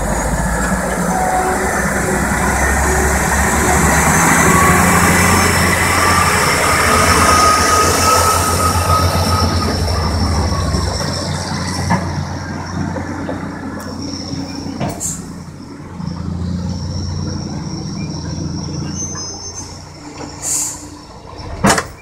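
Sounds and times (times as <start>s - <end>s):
diesel truck engine rumbling: 0.0s - 22.0s
high squeal: 0.0s - 22.0s.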